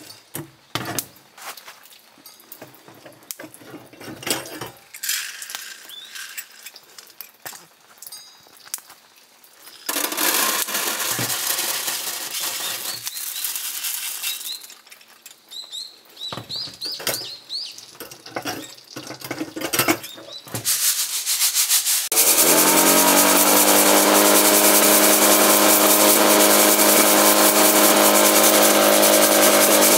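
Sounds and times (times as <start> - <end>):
coffee beans rattling into colander: 4.0 - 6.8, 9.7 - 15.0, 18.0 - 29.9
electric blower humming: 9.9 - 13.1, 22.1 - 29.9.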